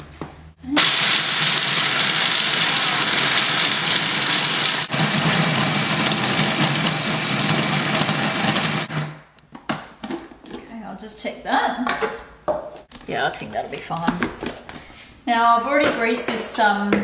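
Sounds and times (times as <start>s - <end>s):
food processor grinding nuts: 0.8s - 9.2s.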